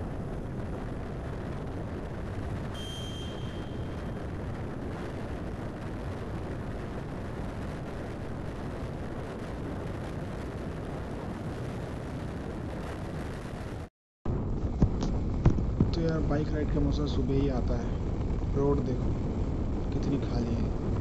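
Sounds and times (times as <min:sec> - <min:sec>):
motorcycle engine and tyre noise: 0:00.0 - 0:21.0
wind buffeting microphone: 0:00.0 - 0:21.0.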